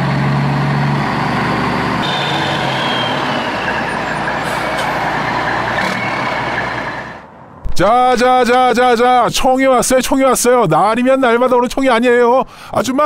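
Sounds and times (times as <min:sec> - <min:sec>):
truck engine humming: 0:00.0 - 0:07.7.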